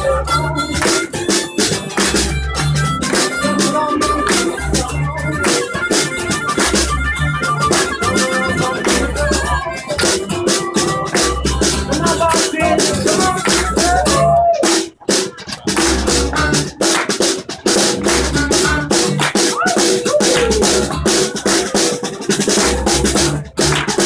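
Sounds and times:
harmonica: 0.0 - 14.5, 16.0 - 16.9, 18.0 - 19.2
acoustic guitar: 0.0 - 24.0
upright bass: 0.0 - 24.0
percussive hits: 0.8 - 7.0, 10.0 - 24.0.

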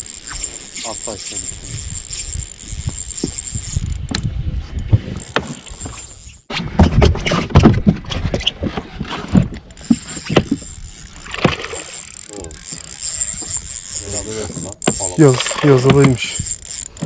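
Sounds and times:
knocks and thumps against boat hull: 6.6 - 9.6.

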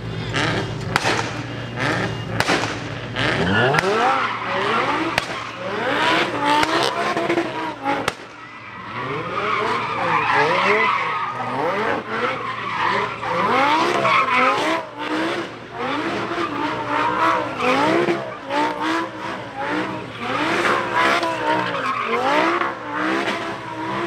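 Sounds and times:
car engine revving: 0.0 - 24.0
tyres screeching: 0.2 - 14.9.

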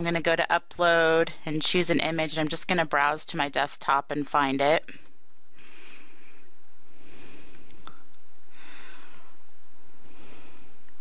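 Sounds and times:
person breathing: 5.5 - 11.0.

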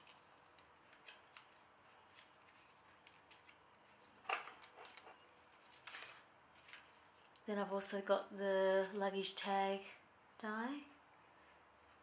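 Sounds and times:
paper and card rustling: 0.0 - 7.4.

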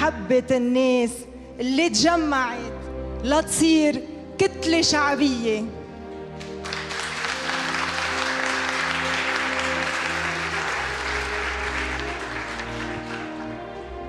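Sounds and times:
slow instrumental music: 0.0 - 14.0
crowd applauding: 6.4 - 14.0.

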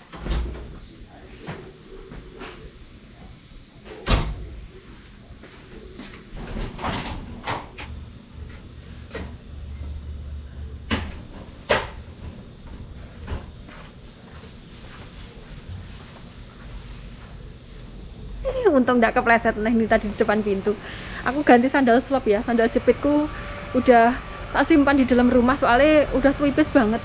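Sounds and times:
sliding door: 6.3 - 7.9.

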